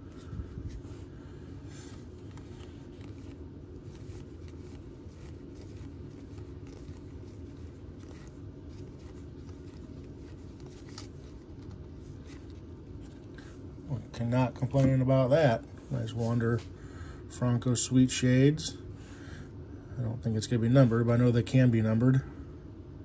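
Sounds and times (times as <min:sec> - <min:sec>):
low background hum: 0:00.0 - 0:23.0
cards sliding and flicking: 0:01.7 - 0:13.6.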